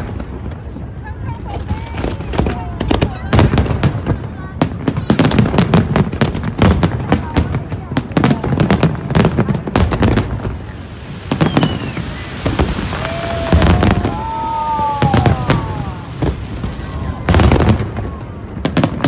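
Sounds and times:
fireworks bangs with rumbling tails: 0.0 - 19.0
whistling shells falling in pitch: 11.4 - 12.0.

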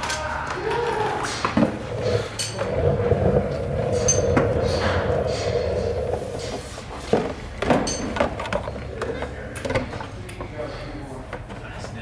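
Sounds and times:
droning hum with low rumble: 1.0 - 10.4.

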